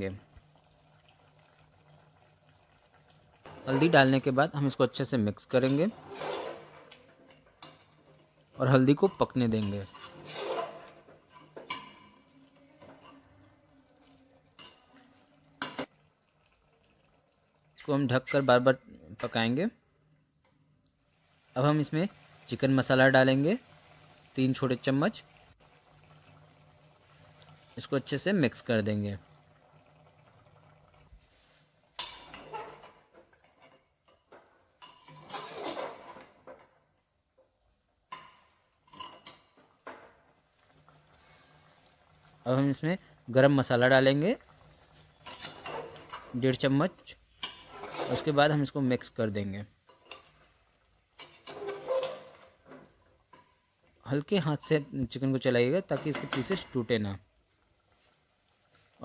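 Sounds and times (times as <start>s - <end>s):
spoon scraping and clinking in pot: 5.6s - 8.0s, 8.9s - 12.2s, 32.0s - 36.6s, 38.1s - 39.6s, 45.0s - 46.4s, 47.4s - 48.4s, 51.2s - 53.5s.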